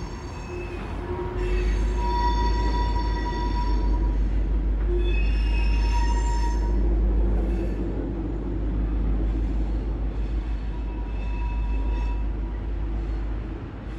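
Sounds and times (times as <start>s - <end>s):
train wheels squealing: 0.0s - 7.9s, 10.2s - 12.6s
train rumbling: 0.0s - 13.9s.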